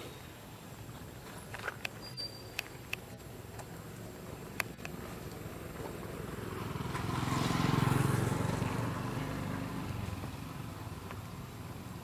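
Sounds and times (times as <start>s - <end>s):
vehicle engine passing: 4.2s - 12.0s.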